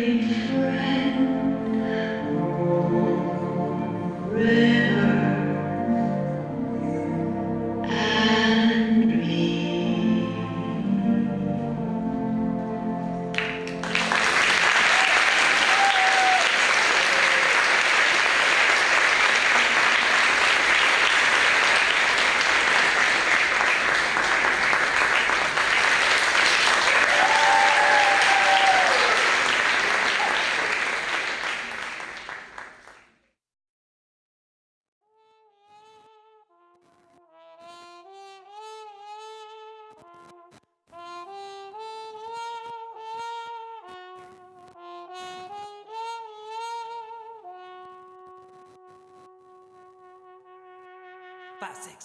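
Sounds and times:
stage music: 0.6s - 32.9s, 37.8s - 52.0s
audience applauding: 13.3s - 33.1s.

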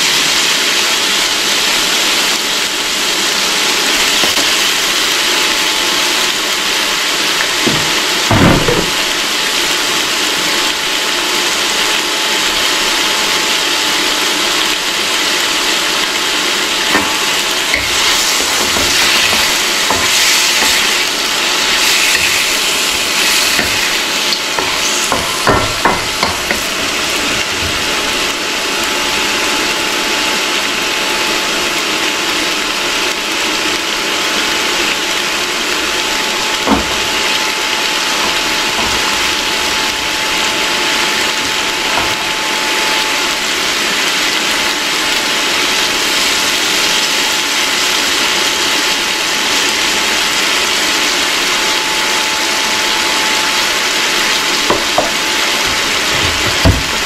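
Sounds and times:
meat and onions sizzling: 0.0s - 57.0s
spatula scraping a pan: 16.9s - 26.8s.

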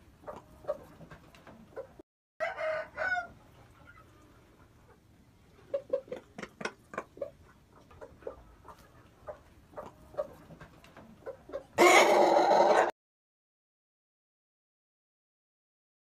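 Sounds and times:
rooster clucking: 0.2s - 12.9s
rooster crowing: 2.4s - 3.3s, 11.8s - 12.9s.

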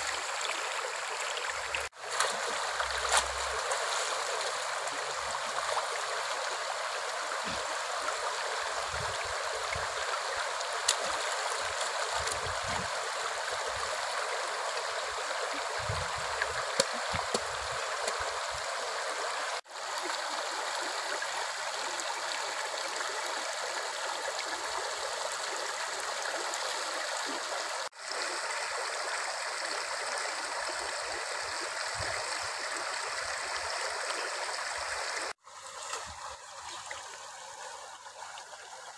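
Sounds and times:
stream rushing over rocks: 0.0s - 38.9s
small water splashes: 1.0s - 6.0s, 10.6s - 12.9s, 15.8s - 18.7s.

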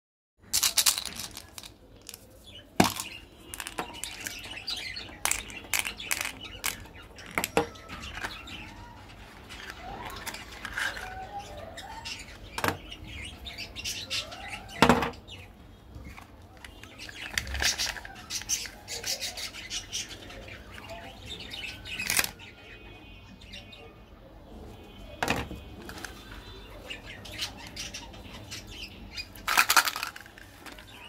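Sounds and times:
packaging clicks and rustles: 0.6s - 8.5s, 9.1s - 11.3s, 16.0s - 19.2s, 21.9s - 22.4s, 29.4s - 31.0s.

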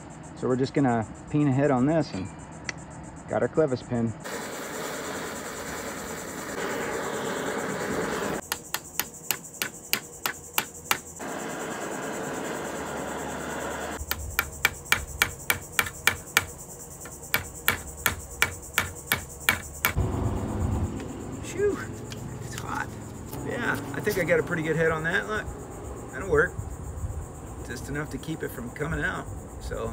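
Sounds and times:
propane torch hissing: 4.3s - 8.4s, 11.2s - 14.0s.

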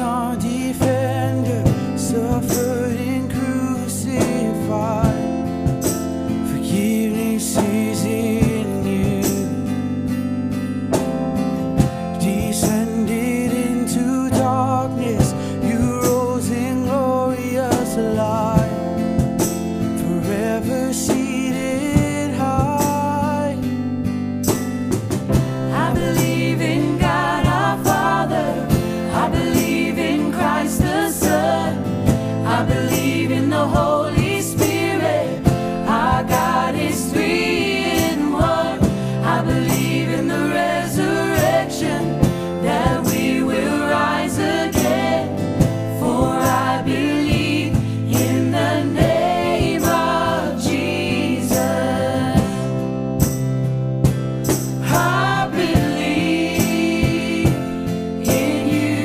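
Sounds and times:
group singing worship song: 0.0s - 10.2s, 25.2s - 53.3s, 54.4s - 59.0s
instrumental backing: 0.0s - 59.0s.

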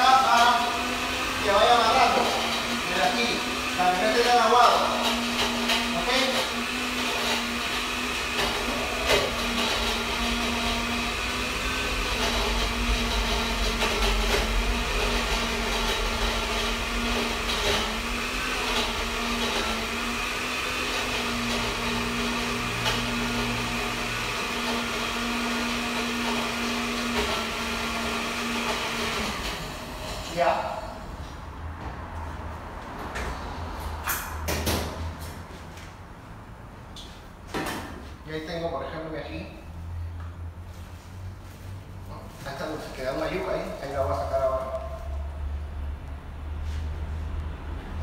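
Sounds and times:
blender motor humming: 0.0s - 31.1s.

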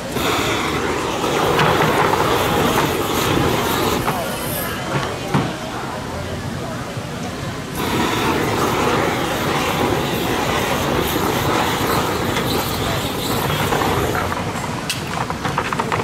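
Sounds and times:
aerosol spray can hissing: 0.1s - 4.8s, 7.8s - 14.4s.

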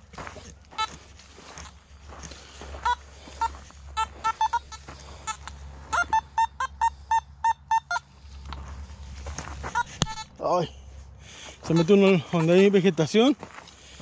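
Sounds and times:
metal detector beeps: 0.8s - 1.1s, 2.8s - 8.2s, 9.7s - 10.4s, 11.6s - 12.4s.

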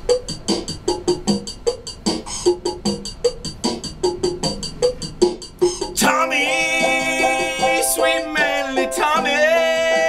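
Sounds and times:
drum machine beat: 0.0s - 10.0s
electronic keyboard notes: 5.6s - 10.0s.

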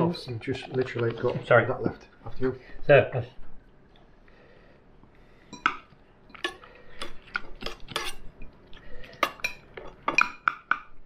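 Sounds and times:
cutlery clinking on a plate: 7.6s - 8.5s, 9.2s - 10.9s.

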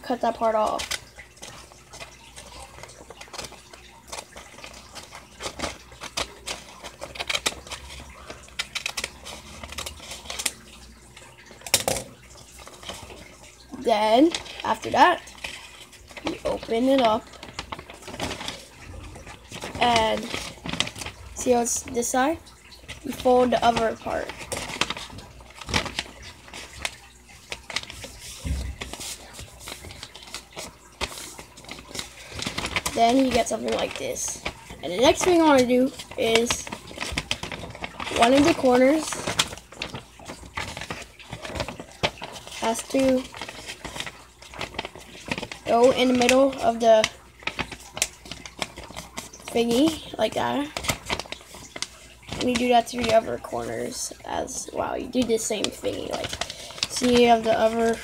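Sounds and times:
paper rustling and crinkling: 0.0s - 58.0s
scissors snipping paper: 55.1s - 58.0s.

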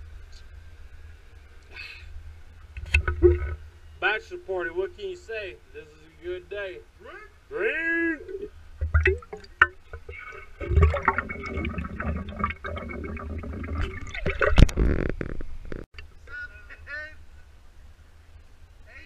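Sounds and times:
liquid gurgling in a bottle: 8.3s - 15.8s.

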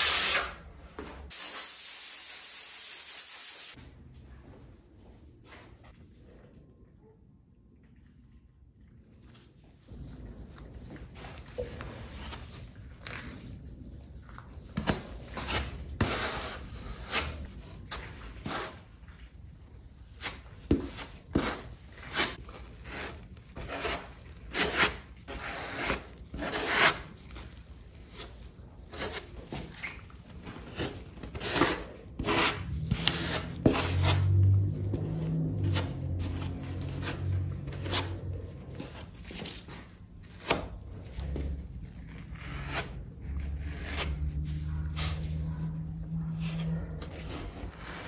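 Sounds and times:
low hum shifting in pitch: 32.6s - 39.4s, 40.8s - 48.0s.

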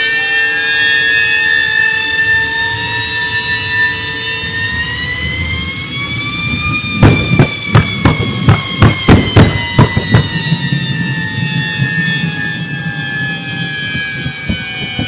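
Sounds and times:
jet turbine whine: 0.0s - 15.0s
loud engine bangs: 6.0s - 15.0s.

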